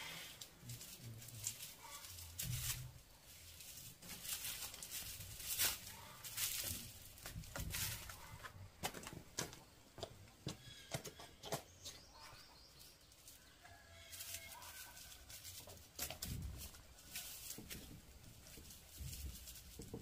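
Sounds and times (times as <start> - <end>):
light knocks and rustles: 3.6 - 12.1, 15.0 - 20.0
birds calling: 9.4 - 14.7.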